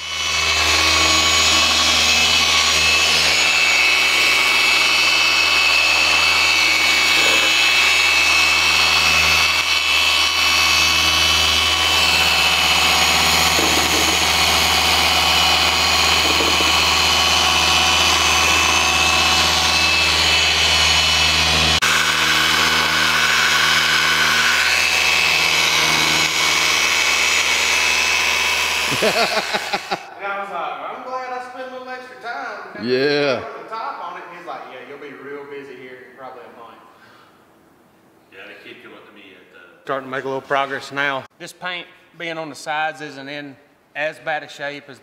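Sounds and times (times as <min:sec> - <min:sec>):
car polisher motor whine: 0:00.0 - 0:30.1.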